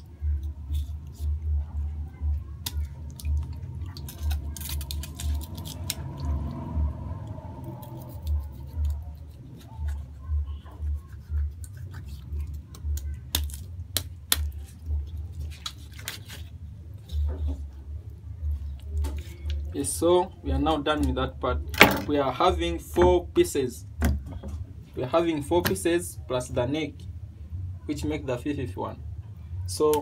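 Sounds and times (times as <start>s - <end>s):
low rumble: 5.4s - 9.1s.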